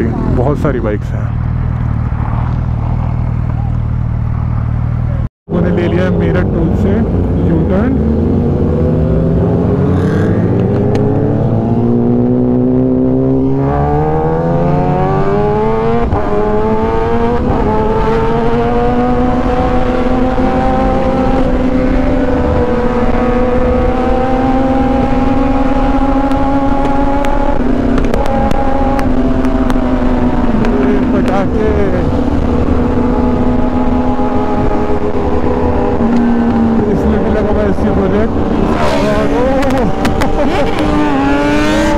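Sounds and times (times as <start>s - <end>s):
motorcycle engine accelerating: 0.0s - 41.9s
rush of wind: 1.3s - 41.9s.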